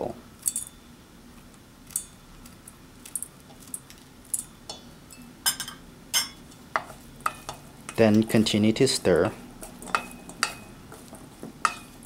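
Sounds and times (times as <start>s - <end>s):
clinks on metal bowl: 4.4s - 8.0s, 11.6s - 12.0s.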